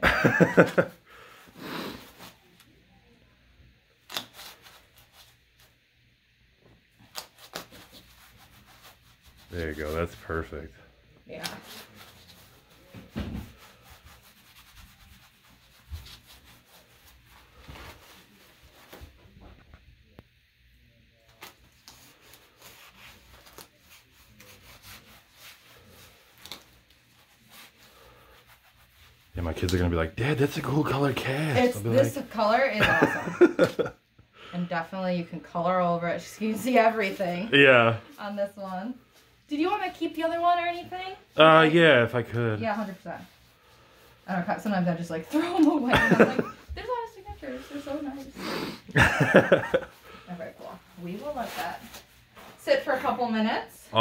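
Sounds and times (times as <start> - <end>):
gloved hands rubbing a cast: 7.1 - 10.6, 11.3 - 19.3, 21.3 - 32.6, 49.0 - 53.4
gloved hands rubbing wet cast: 21.3 - 32.5.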